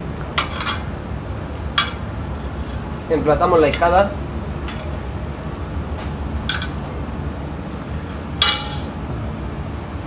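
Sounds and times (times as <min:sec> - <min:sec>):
steady low hum: 0:00.0 - 0:10.0
metal spoon clinking on steel tray: 0:08.4 - 0:08.9.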